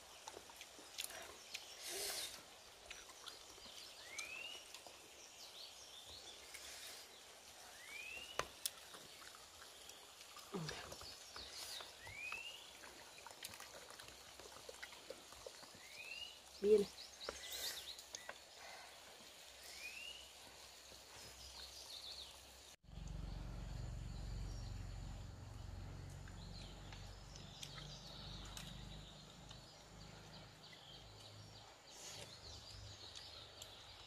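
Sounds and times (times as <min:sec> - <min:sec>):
bird chirps: 0:22.3 - 0:34.0.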